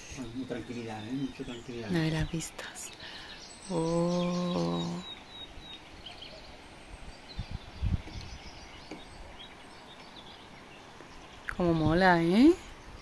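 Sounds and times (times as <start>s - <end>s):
low background hiss: 0.0s - 13.0s
small birds chirping: 0.0s - 13.0s
low thumps on microphone: 7.4s - 9.2s.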